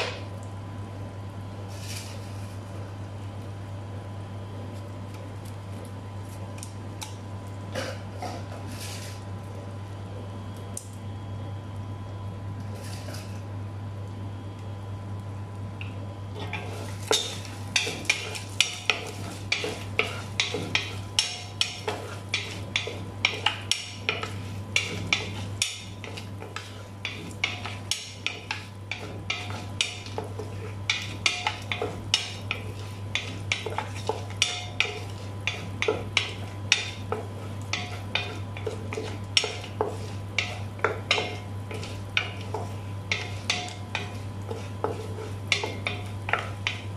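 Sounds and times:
steady low hum: 0.0 - 46.9
onions frying in butter: 16.2 - 46.9
wooden spoon scraping pot: 16.4 - 46.9.

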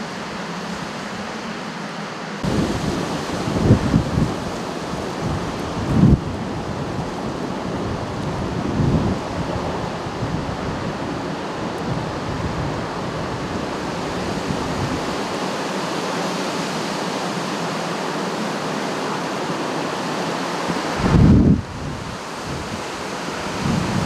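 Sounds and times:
wind gust buffeting microphone: 2.4 - 15.6, 20.8 - 24.0
storm wind rushing: 2.4 - 16.9, 20.7 - 24.0.

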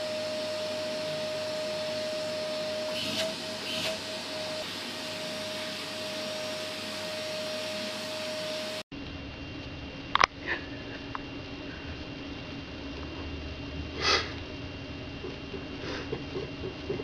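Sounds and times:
vacuum cleaner whining: 0.0 - 8.9
low hum: 0.0 - 17.0.

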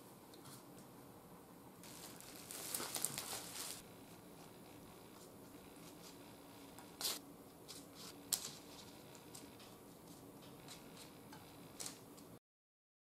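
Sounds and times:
pastry brush dabbing dough: 1.8 - 12.2.

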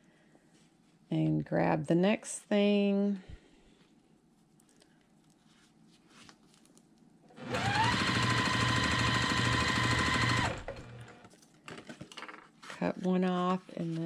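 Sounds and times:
sewing machine stitching: 7.4 - 11.3.

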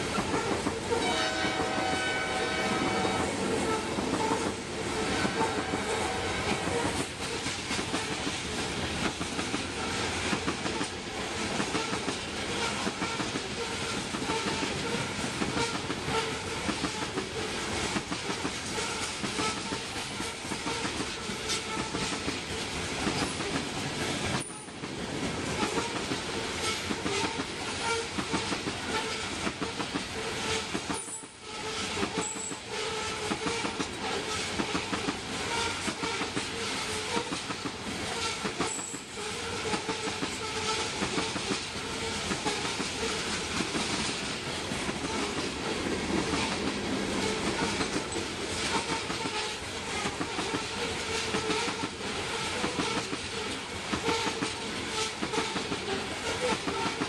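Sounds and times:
train cars rumbling past: 0.0 - 57.0
locomotive horn: 0.2 - 7.1, 11.8 - 17.2, 18.7 - 22.2, 25.6 - 34.9, 35.5 - 37.4, 38.1 - 43.2, 47.2 - 57.0.

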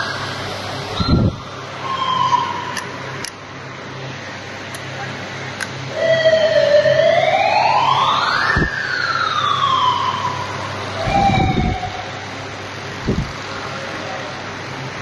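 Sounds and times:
siren-like wailing tone: 0.0 - 3.2, 5.9 - 12.5.

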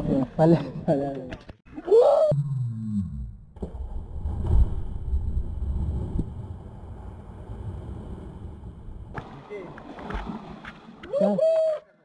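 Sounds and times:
low rumbling noise: 2.3 - 9.8
person splashing into water: 9.2 - 11.2.

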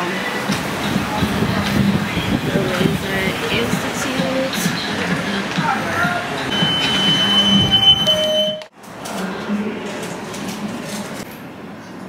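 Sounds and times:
murmur of voices: 0.0 - 12.0
high electronic beep: 6.5 - 8.7.

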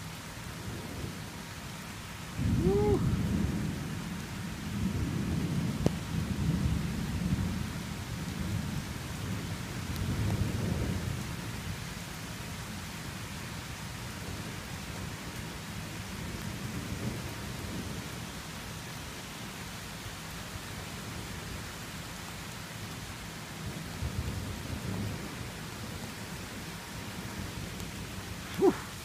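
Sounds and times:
steady rain: 0.0 - 29.0
thunder rumbling: 2.3 - 11.3.

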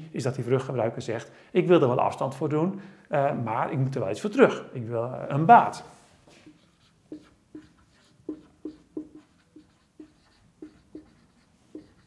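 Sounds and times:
marker squeaking on whiteboard: 6.4 - 12.0.

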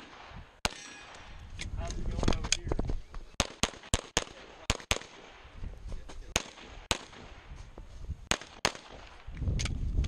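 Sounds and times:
pistol shots: 0.0 - 1.3, 3.4 - 5.4, 6.3 - 7.4, 8.3 - 9.3.

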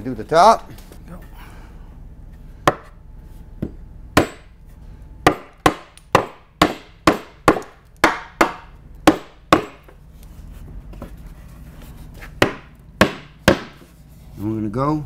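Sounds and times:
hammer striking wood: 2.6 - 3.0, 3.6 - 4.5, 5.2 - 10.0, 12.4 - 13.9.

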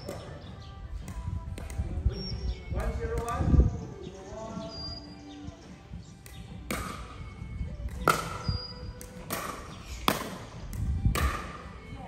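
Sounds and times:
ball hits: 1.0 - 2.0, 2.8 - 3.5, 6.2 - 7.3, 7.9 - 11.8
shoe squeak on court: 8.4 - 8.9.

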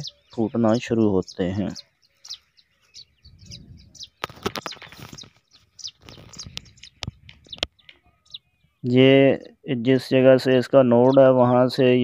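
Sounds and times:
small birds chirping: 0.0 - 12.0
rustles: 2.0 - 8.1.

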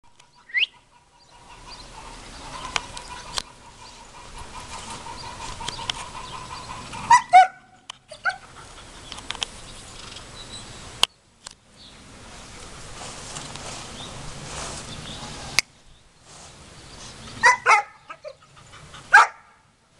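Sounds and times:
puppy yapping: 7.0 - 8.5, 17.4 - 19.6.

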